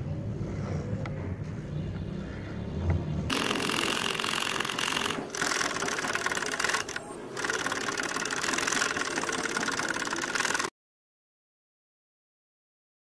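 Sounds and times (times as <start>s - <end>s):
motor driven air pump buzzing: 3.3s - 10.7s.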